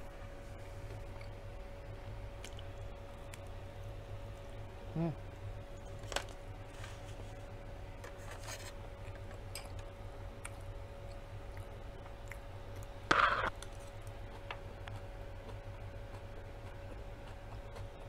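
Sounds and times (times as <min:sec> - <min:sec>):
faint steady hum: 0:00.0 - 0:18.0
faint chewing: 0:08.5 - 0:12.9, 0:13.5 - 0:18.0.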